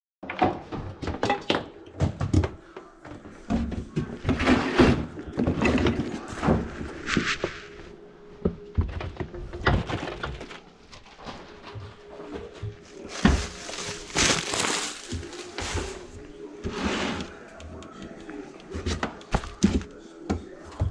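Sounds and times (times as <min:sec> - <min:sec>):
rustling: 0:09.7 - 0:17.4.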